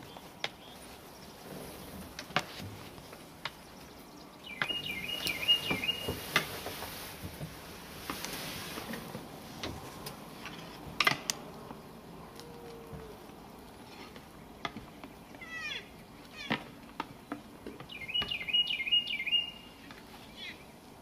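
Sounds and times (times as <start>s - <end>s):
bird chirping song: 0.0s - 1.8s, 2.9s - 6.3s, 14.2s - 20.9s.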